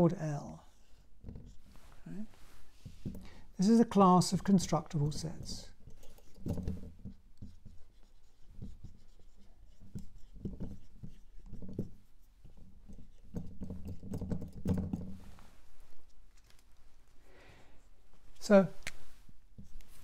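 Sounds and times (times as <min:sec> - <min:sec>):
pen scratching on paper: 0:06.0 - 0:11.9.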